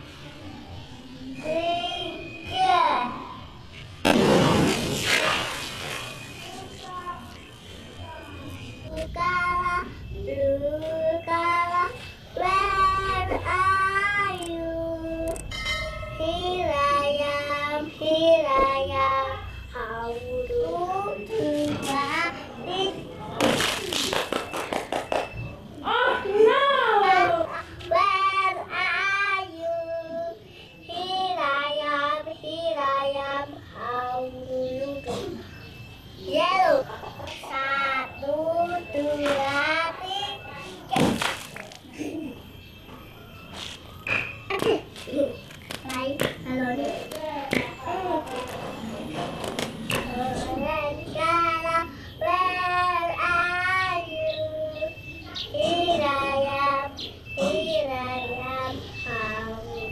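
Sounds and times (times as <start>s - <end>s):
child singing: 1.3s - 3.4s, 8.8s - 15.5s, 16.1s - 23.6s, 27.0s - 35.4s, 36.3s - 41.2s, 49.9s - 59.9s.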